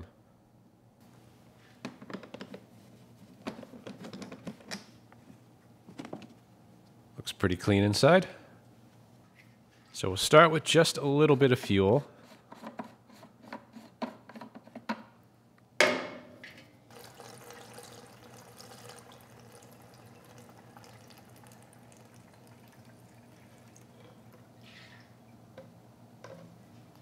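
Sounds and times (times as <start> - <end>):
sharp clunk: 15.8 - 16.5
gasoline pouring into tank: 16.9 - 25.1.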